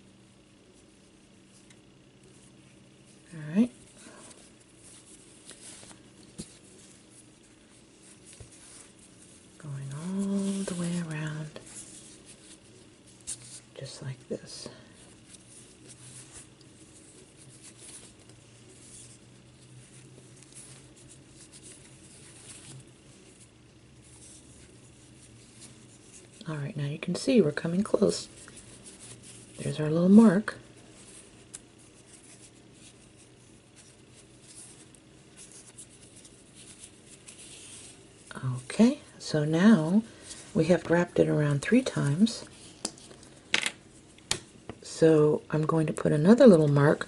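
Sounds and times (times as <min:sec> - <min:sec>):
fabric strip rustling: 0:01.5 - 0:14.2, 0:15.0 - 0:26.6, 0:27.2 - 0:39.0.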